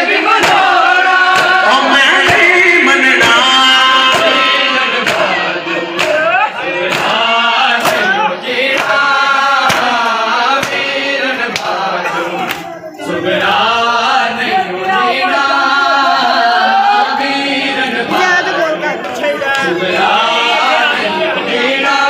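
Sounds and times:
men chanting in unison: 0.0s - 22.0s
chest-beating slaps: 5.0s - 5.4s, 6.0s - 6.2s, 6.9s - 7.2s, 7.8s - 8.1s, 8.7s - 9.0s, 9.6s - 10.9s, 11.5s - 11.8s.

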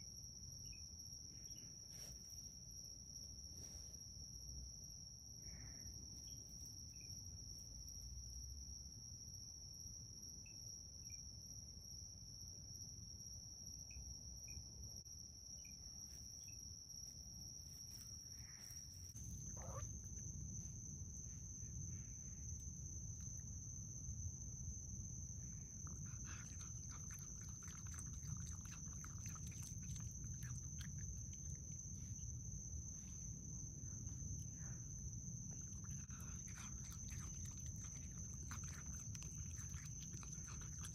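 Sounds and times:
crickets trilling: 0.0s - 40.9s
raccoon chewing and clicking: 25.8s - 32.2s, 35.4s - 40.9s.

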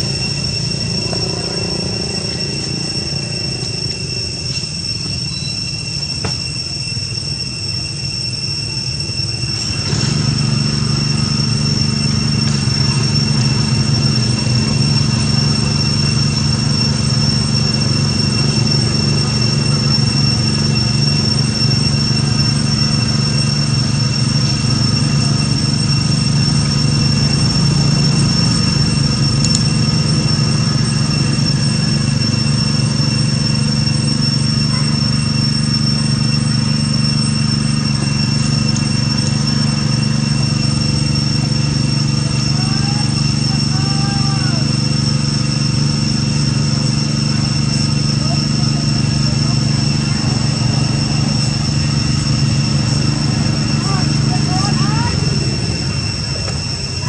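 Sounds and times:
high whine: 0.0s - 57.0s
low mechanical hum: 0.0s - 57.0s.

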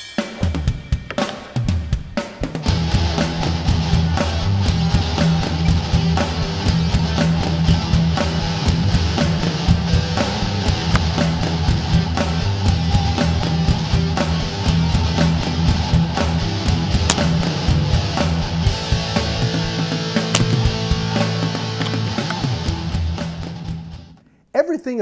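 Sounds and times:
loud rock music: 0.0s - 24.1s.

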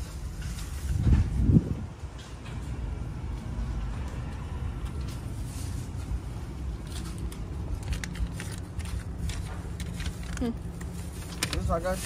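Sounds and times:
plastic bag crinkling: 6.8s - 12.0s.

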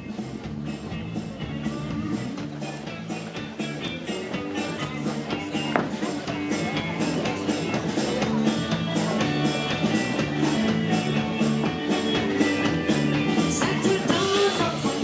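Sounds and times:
country band playing: 0.0s - 15.0s
guitar: 0.0s - 15.0s
steady drum beat: 0.0s - 15.0s.

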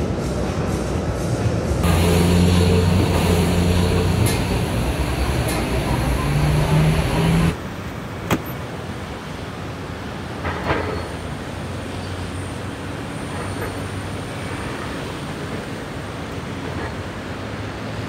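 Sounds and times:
traffic noise: 0.0s - 18.0s.

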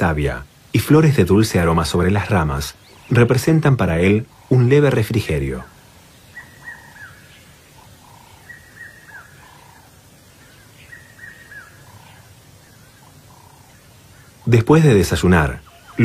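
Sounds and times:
bird singing whistled notes: 5.6s - 9.8s, 10.4s - 14.5s, 15.6s - 16.0s.

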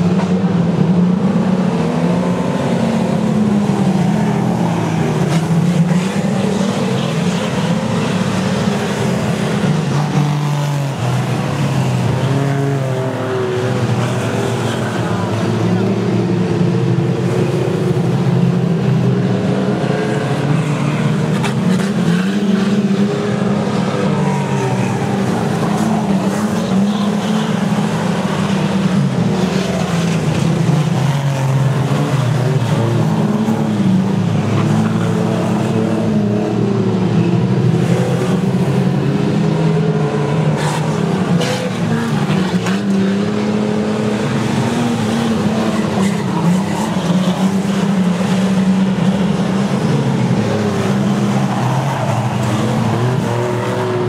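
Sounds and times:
race car engines: 0.0s - 54.0s.

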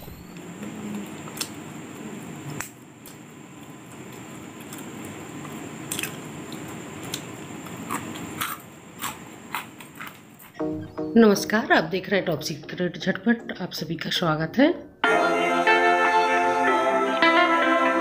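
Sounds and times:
crisp snacks snapping: 4.1s - 10.6s.

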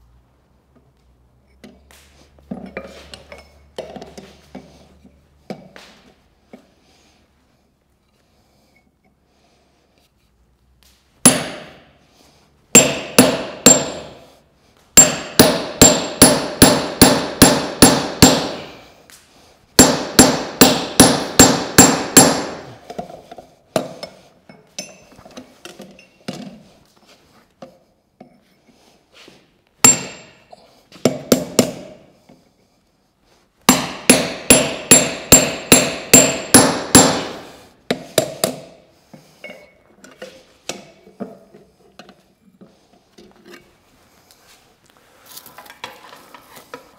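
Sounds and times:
hammer striking steel: 11.2s - 11.9s, 12.7s - 14.3s, 15.0s - 18.9s, 19.8s - 22.8s, 29.8s - 32.0s, 33.7s - 38.8s.

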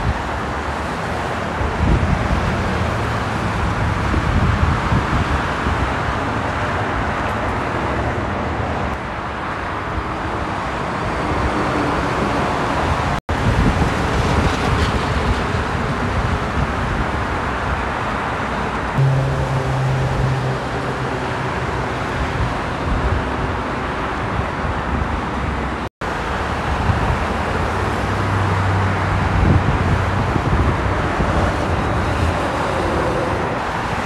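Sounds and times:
freeway traffic: 0.0s - 34.0s
wind on microphone: 1.6s - 6.2s, 28.9s - 34.0s.

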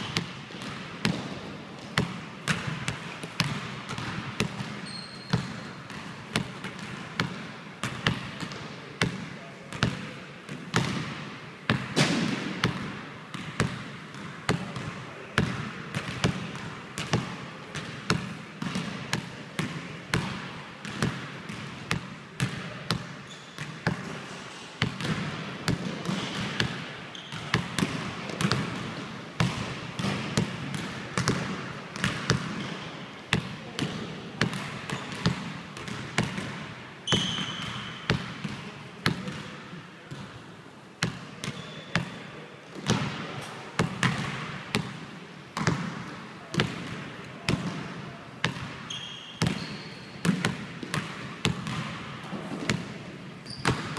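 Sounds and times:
shoe squeak: 4.8s - 5.6s, 23.2s - 23.6s, 27.1s - 27.5s, 37.0s - 38.0s, 41.5s - 42.0s, 48.9s - 50.2s, 53.4s - 53.8s
basketball bouncing on hardwood: 24.8s - 32.7s.

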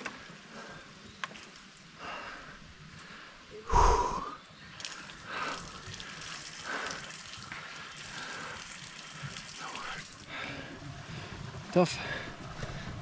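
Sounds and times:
man breathing hard: 2.0s - 4.4s, 5.2s - 11.4s.

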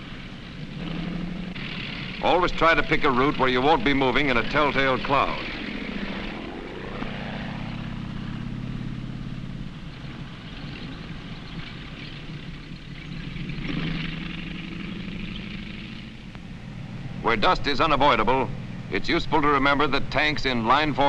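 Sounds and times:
old film soundtrack hiss: 0.0s - 6.4s
tank engines droning: 0.0s - 21.0s.

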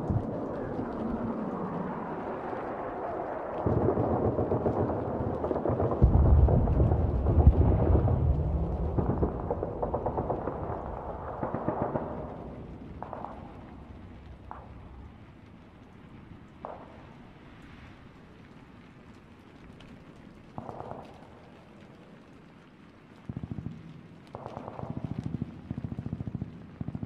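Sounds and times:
dense crackle: 0.0s - 27.0s
deep rumbling booms: 3.7s - 15.5s.

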